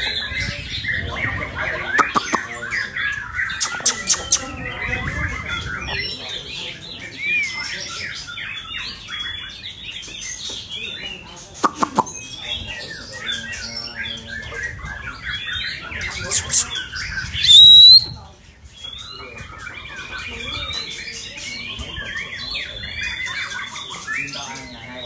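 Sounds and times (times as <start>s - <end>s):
songbirds chirping and whistling: 0.0s - 25.0s
loud bird call rising whistle: 17.4s - 18.1s.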